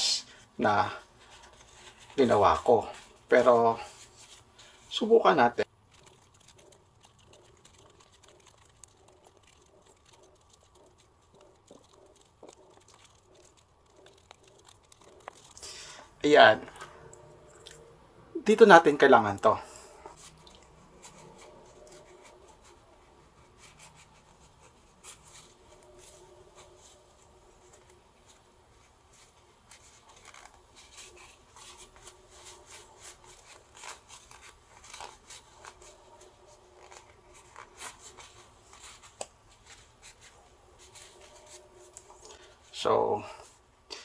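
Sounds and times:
denim fabric rubbing: 1.1s - 16.7s, 20.1s - 42.5s.

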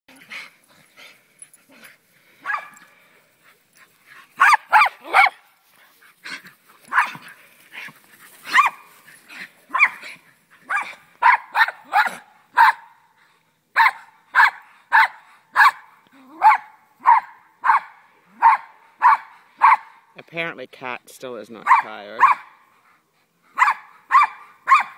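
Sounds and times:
dog barking: 2.4s - 2.8s, 4.4s - 5.4s, 6.9s - 7.2s, 8.5s - 8.8s, 9.7s - 10.0s, 10.7s - 13.0s, 13.8s - 20.0s, 21.6s - 22.6s, 23.6s - 24.9s.

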